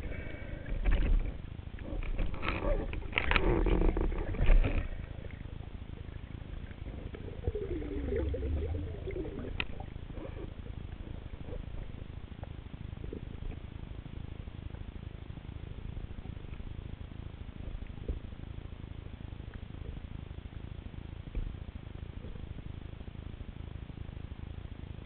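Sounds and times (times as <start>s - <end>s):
low underwater rumble: 0.0s - 23.5s
muffled underwater knocks and rustling: 0.5s - 13.8s, 17.6s - 18.4s, 21.2s - 22.8s
wavering tone: 7.2s - 10.6s.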